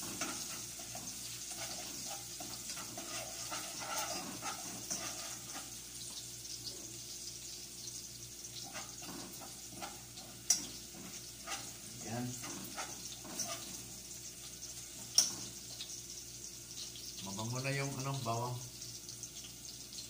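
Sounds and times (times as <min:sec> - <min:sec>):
spoon scraping and clicking on pan: 0:00.0 - 0:06.2, 0:08.5 - 0:13.9, 0:15.0 - 0:15.9
garlic sizzling in a pan: 0:00.0 - 0:20.0.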